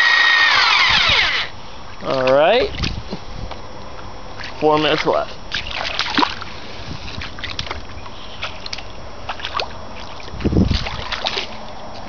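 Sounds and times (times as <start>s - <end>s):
shallow water splashing: 4.4s - 11.6s
deep splash: 5.5s - 6.4s, 9.3s - 11.6s.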